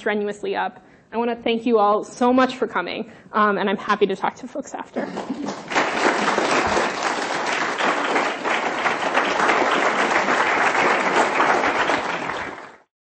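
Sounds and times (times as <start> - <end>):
audience applauding: 5.0 - 12.9.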